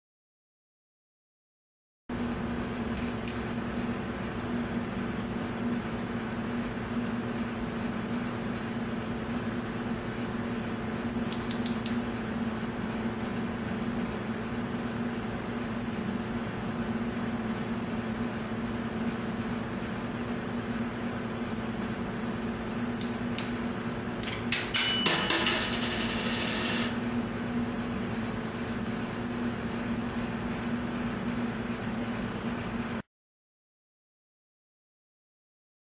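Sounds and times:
low mechanical hum: 2.1s - 33.0s.

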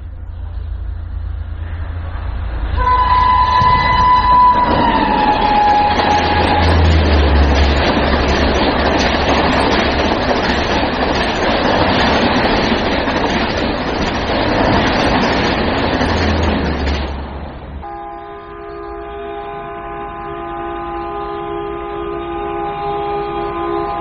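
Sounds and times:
train rumbling on rails: 0.0s - 24.0s.

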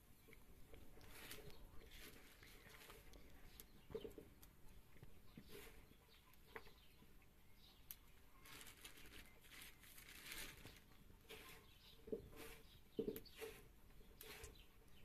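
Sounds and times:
plastic bag crinkling: 8.4s - 10.9s.

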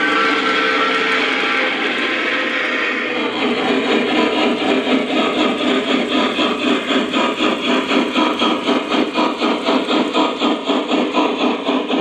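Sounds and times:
model steam locomotive chuffing: 0.0s - 12.0s.

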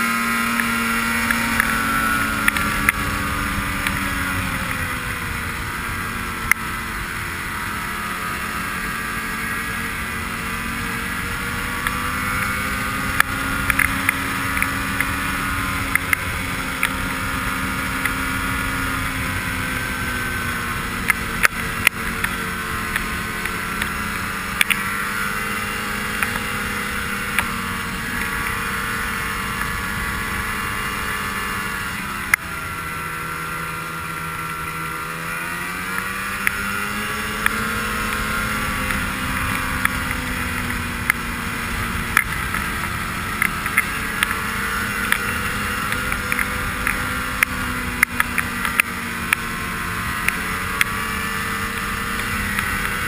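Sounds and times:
snowmobile engine running: 0.0s - 53.0s.

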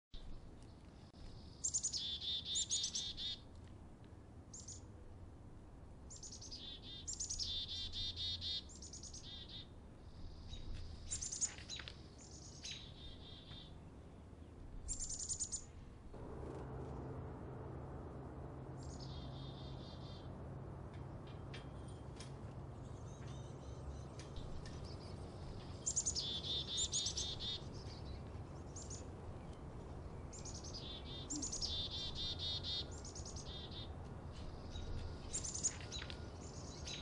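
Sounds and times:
chickadees calling: 1.6s - 3.4s, 14.9s - 29.2s, 30.2s - 37.0s.

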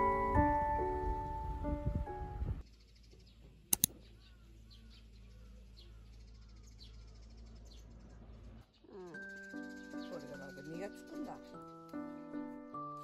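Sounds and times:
small birds chirping: 2.6s - 12.5s
sharp clicks: 3.7s - 4.0s.

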